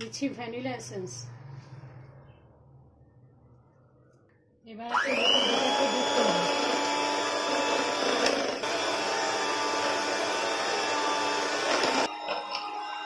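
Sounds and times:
electric hand mixer whining: 4.9s - 12.1s.

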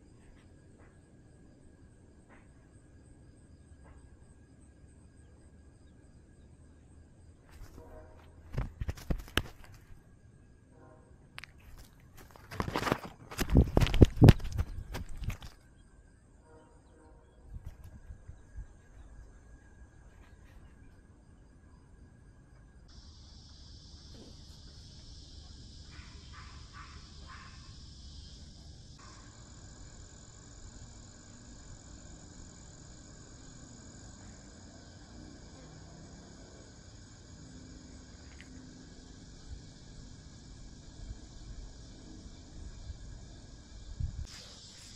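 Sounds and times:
insects singing: 22.8s - 44.9s.

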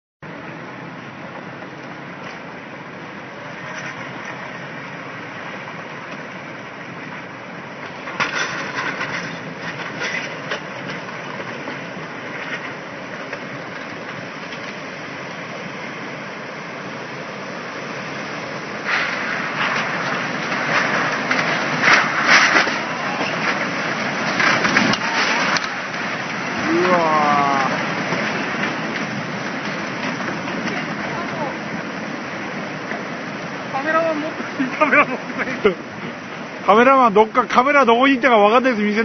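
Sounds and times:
flood water rushing: 0.2s - 39.0s
debris cracking and crunching: 7.8s - 14.9s, 18.8s - 31.8s.

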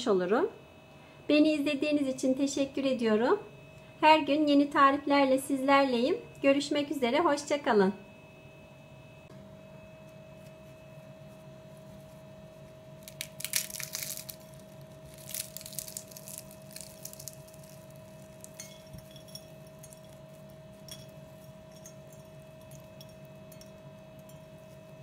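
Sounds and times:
faint steady hum: 0.0s - 25.0s
pastry crackling: 10.5s - 25.0s
flakes falling onto glass plate: 13.0s - 24.8s.

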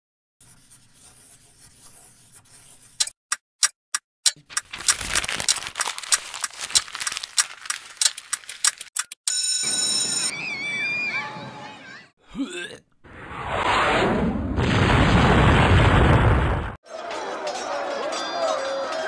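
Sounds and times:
paper crumpling: 4.4s - 9.1s.

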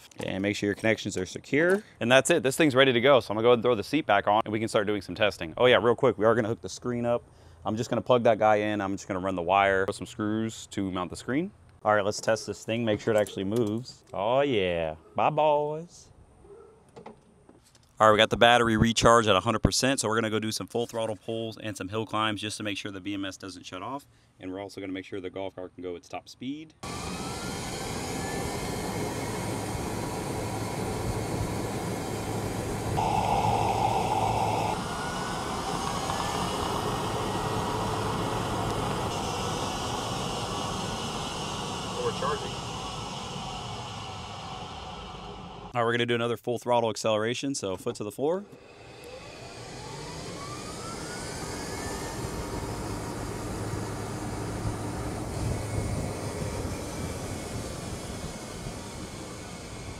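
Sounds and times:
electric motor whine: 26.8s - 45.7s, 48.5s - 59.9s
road and wind noise: 26.9s - 42.0s, 50.4s - 59.9s.

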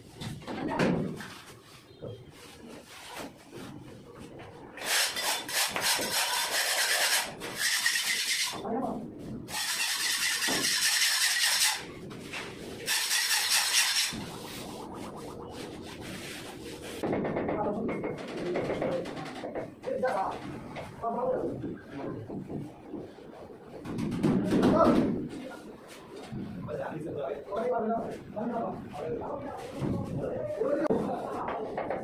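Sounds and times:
hand tools scraping plaster on wall: 4.8s - 8.6s, 9.5s - 11.9s, 12.8s - 14.3s.

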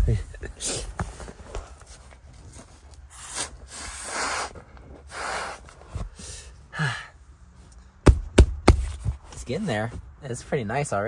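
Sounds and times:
person blowing into valve: 3.1s - 5.7s.

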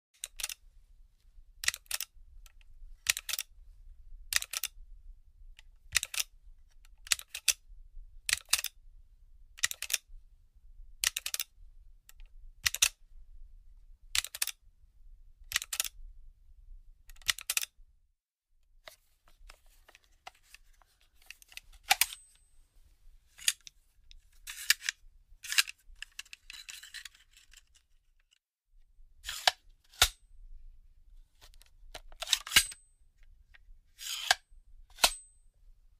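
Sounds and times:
sharp mechanical clicks: 1.6s - 2.1s, 4.3s - 4.7s, 5.9s - 6.3s
magazine scraping slide: 20.5s - 22.4s, 23.4s - 23.7s, 24.5s - 27.6s, 29.2s - 30.2s, 32.2s - 32.8s, 34.0s - 35.3s.

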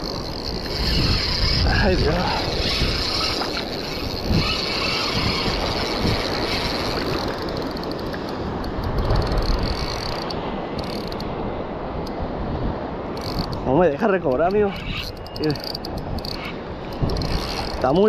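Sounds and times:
shallow surf washing: 0.0s - 18.0s
wind rumble on microphone: 0.0s - 18.0s
faint high ticks: 6.8s - 11.3s.

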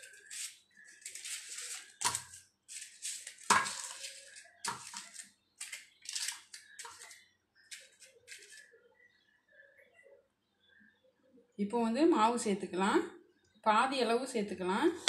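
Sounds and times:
paper liners crinkling: 0.0s - 8.7s.

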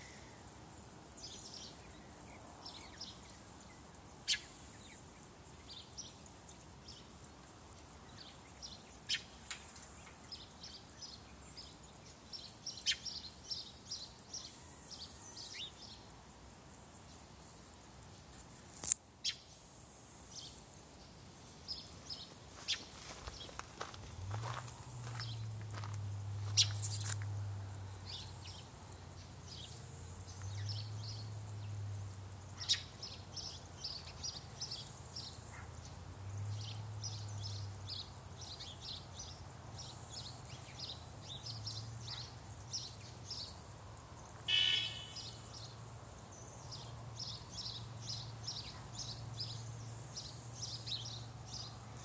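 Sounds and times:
small birds chirping: 0.0s - 52.0s
harsh bird call: 44.5s - 45.4s.

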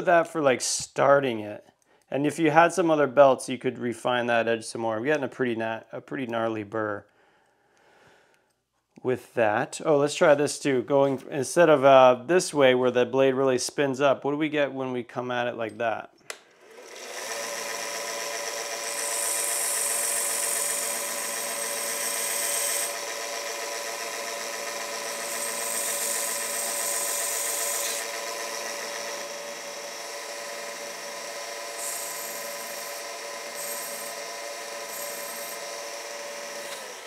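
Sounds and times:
belt sander motor humming: 16.4s - 37.0s
metal grinding on sanding belt: 18.7s - 29.0s, 31.7s - 35.7s.

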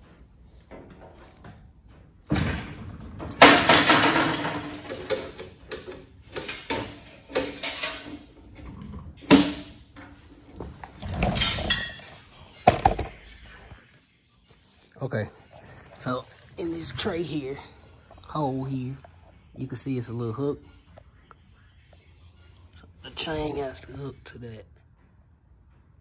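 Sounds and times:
handling noises: 3.0s - 13.9s
metal chain rattling: 3.3s - 12.4s.

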